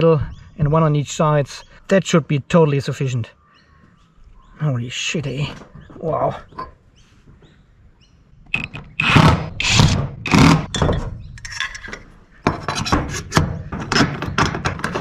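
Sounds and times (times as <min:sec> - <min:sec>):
metal profile scraping: 0:08.5 - 0:15.0.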